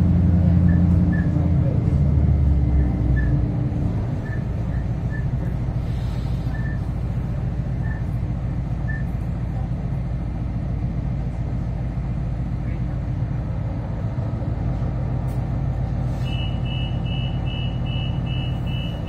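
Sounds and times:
railcar diesel drone: 0:00.0 - 0:19.0.

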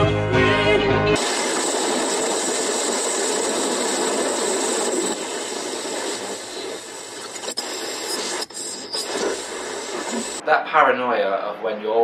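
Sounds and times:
steady rushing noise: 0:01.2 - 0:10.4.

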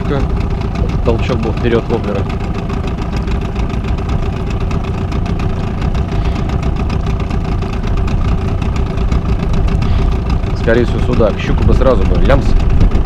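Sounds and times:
small outboard motor running: 0:00.0 - 0:13.0.

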